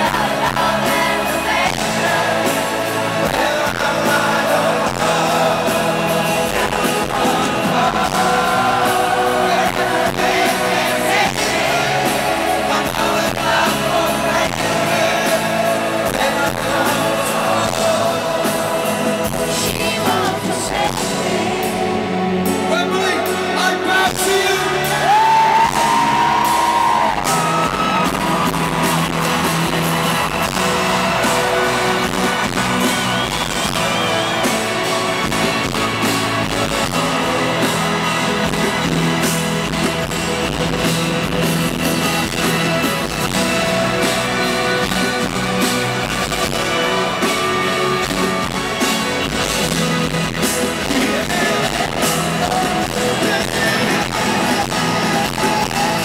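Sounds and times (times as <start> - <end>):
man singing: 0.0 - 26.0, 50.5 - 56.0
crowd voices: 0.0 - 56.0
live rock band playing: 0.0 - 56.0.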